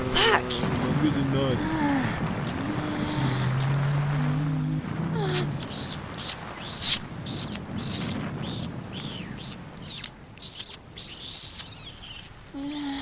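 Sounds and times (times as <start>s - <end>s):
wet squeaky smacks and drips: 5.2s - 12.5s.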